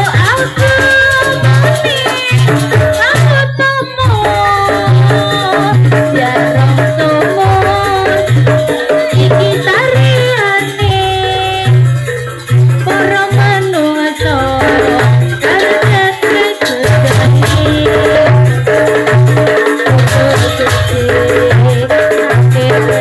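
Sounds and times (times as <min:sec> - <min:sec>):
pulsing low drum beat: 0:00.0 - 0:23.0
rattling percussion: 0:00.0 - 0:23.0
sliding melody line: 0:00.0 - 0:23.0.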